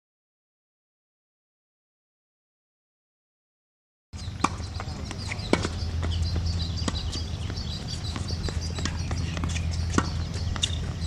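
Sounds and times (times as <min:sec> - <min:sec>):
birds chirping: 0:04.2 - 0:11.0
low steady rumble: 0:04.2 - 0:11.0
tennis ball hit by racket: 0:04.3 - 0:06.2, 0:06.8 - 0:11.0.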